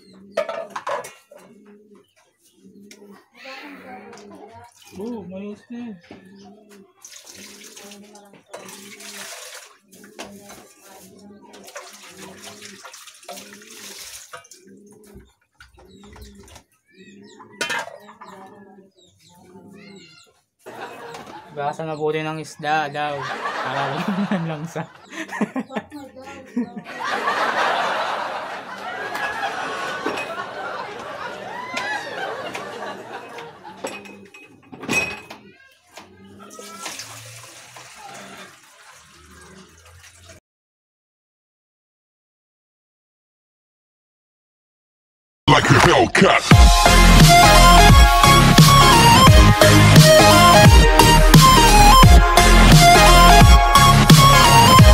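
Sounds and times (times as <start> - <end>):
birds chirping: 0.0 - 40.2, 45.5 - 54.9
water splashing in sink: 7.0 - 14.6, 36.5 - 40.4.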